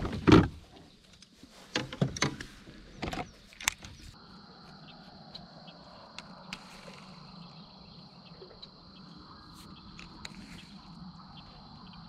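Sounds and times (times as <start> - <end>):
high-pitched insect chorus: 3.0 - 12.0.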